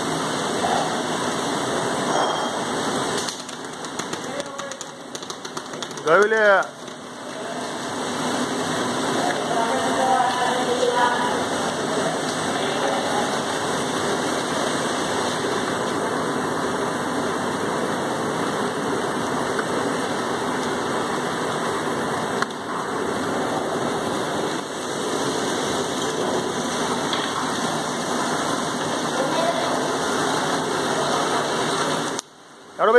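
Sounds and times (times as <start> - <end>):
machine line running: 0.0 - 32.3.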